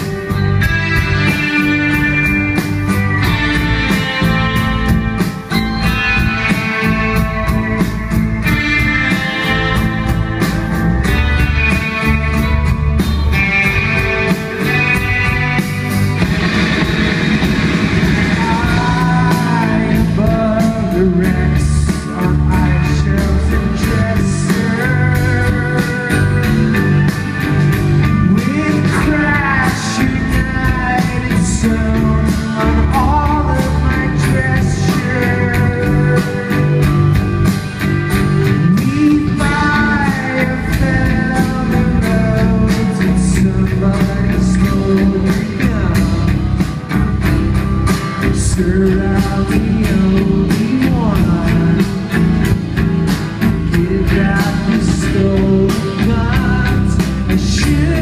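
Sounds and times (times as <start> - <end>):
drums with cymbal beat: 0.0 - 58.0
electric guitars: 0.0 - 58.0
man singing: 18.2 - 37.5, 38.4 - 46.9, 48.2 - 52.6, 53.4 - 58.0.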